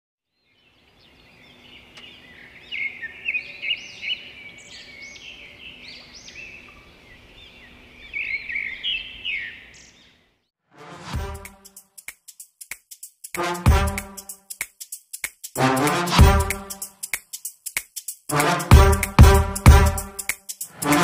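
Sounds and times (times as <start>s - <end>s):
birds chirping and singing: 0.4s - 10.3s.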